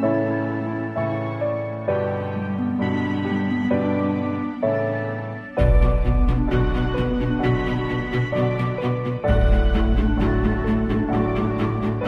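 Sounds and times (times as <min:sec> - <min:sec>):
music with deep bass and beat: 0:05.6 - 0:12.0.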